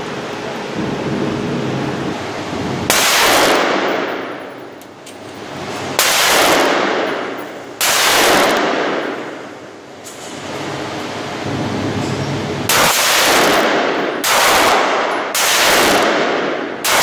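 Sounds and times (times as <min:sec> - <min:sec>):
echoing gunshots: 0:02.8 - 0:04.6, 0:05.9 - 0:09.7, 0:12.7 - 0:17.0.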